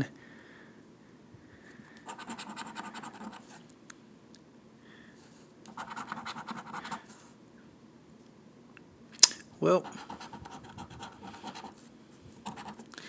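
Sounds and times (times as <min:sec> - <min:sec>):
coin scratching a paper ticket: 0:02.1 - 0:03.5, 0:05.7 - 0:07.0, 0:09.8 - 0:11.8, 0:12.4 - 0:12.8.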